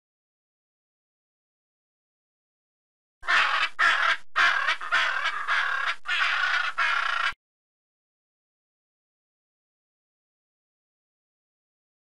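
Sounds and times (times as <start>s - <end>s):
macaw squawking: 3.2s - 7.4s.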